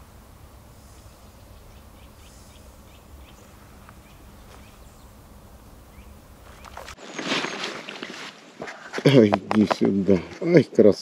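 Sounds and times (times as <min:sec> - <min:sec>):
low steady rumble: 0:00.0 - 0:07.0
faint bird chirps: 0:00.7 - 0:05.3, 0:05.9 - 0:07.0
short bird calls: 0:00.8 - 0:05.3, 0:05.9 - 0:07.0.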